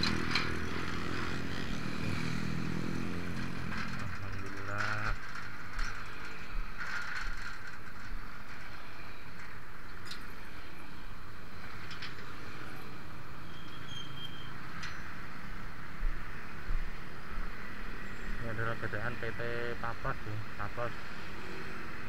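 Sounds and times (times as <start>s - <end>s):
road and traffic noise: 0.0s - 22.0s
light clicks and rattles: 3.2s - 10.4s.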